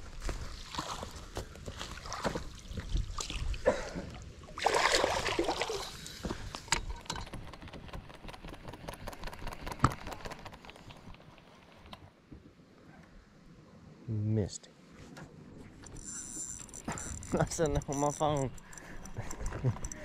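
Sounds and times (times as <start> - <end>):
footsteps on grass and rocks: 0.0 - 3.1
small clicks and knocks: 6.2 - 12.1, 15.8 - 20.0.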